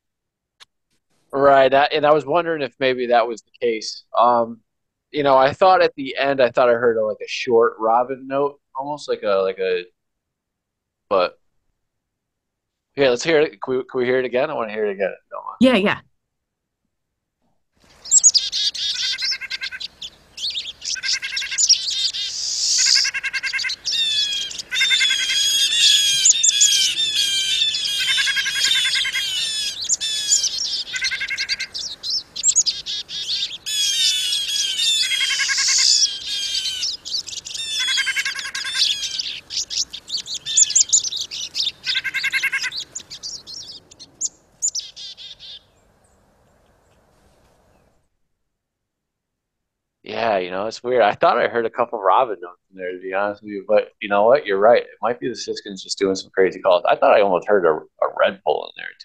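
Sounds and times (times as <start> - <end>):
lower bird call: 17.9 - 45.7, 50.1 - 59.0
wheezy bird calls: 17.9 - 45.7
birds twittering: 17.9 - 47.9.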